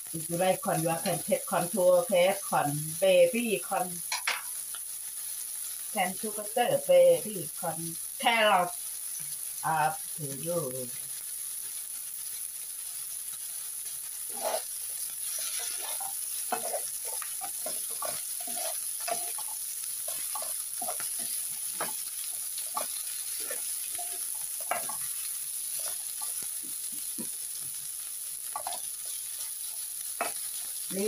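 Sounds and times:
shrimp sizzling in frying pan: 0.0 - 31.0
spatula scraping pan: 14.2 - 31.0.

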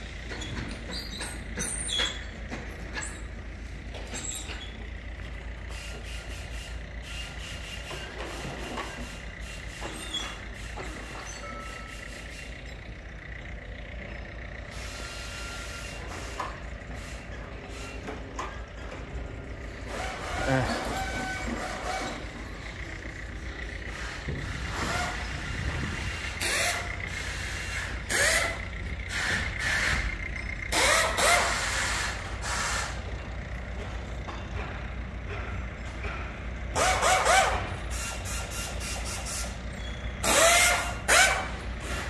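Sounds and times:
heavy vehicle rumble: 0.0 - 42.0
air brake hiss with squeal: 5.6 - 12.9, 14.7 - 18.6, 19.8 - 22.3, 23.9 - 25.4, 26.0 - 33.2, 36.7 - 42.0.

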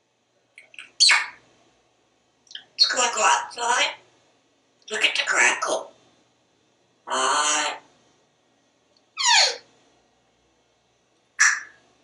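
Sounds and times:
parrot squeaky call: 0.7 - 1.4, 9.2 - 9.7, 11.4 - 11.8.

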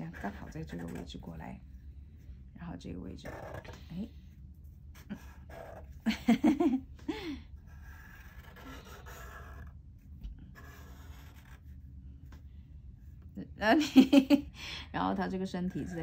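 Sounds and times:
marker pens scratching on paper: 0.0 - 1.6, 2.9 - 6.1, 7.6 - 12.4, 15.2 - 16.0.

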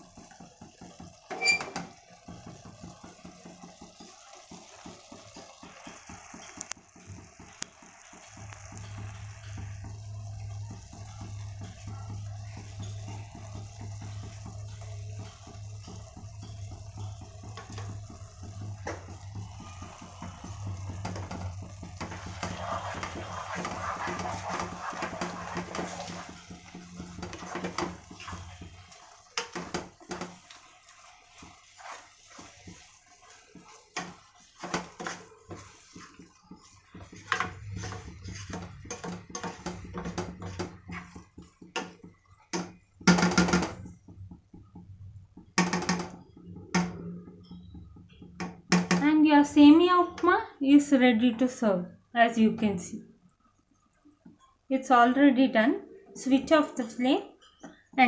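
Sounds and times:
food bubbling in a pot: 0.0 - 51.0, 53.0 - 58.0
low hum: 8.4 - 29.0
spatula scraping in pot: 19.8 - 42.5
spatula knocking against pot: 31.3 - 49.1.

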